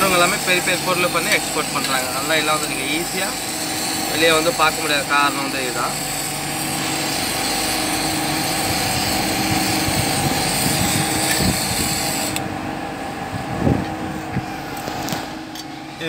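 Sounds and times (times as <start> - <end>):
gas torch flame hissing: 0.0 - 12.5.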